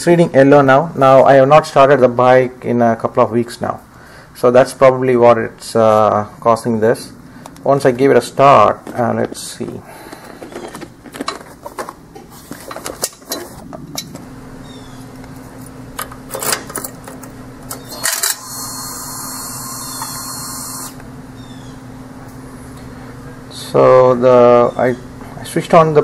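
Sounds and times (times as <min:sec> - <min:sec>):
keys and switches clinking: 0:15.6 - 0:18.5.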